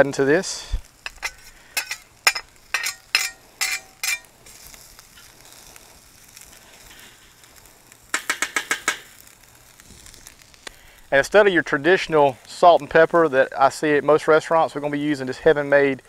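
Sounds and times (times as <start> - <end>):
rice sizzling in oil: 0.0 - 16.0
metal spatula scraping and clinking: 1.0 - 4.3.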